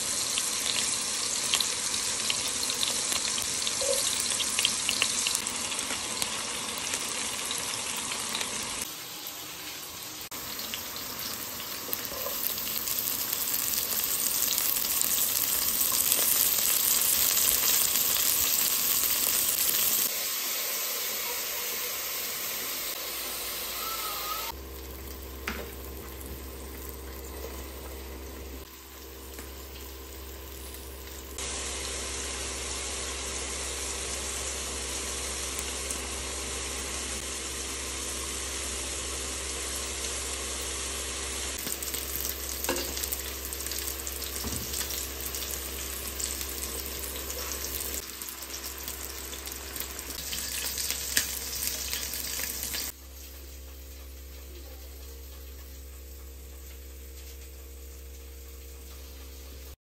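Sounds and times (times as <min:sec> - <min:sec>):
vegetables sizzling in a pan: 0:00.0 - 0:59.8.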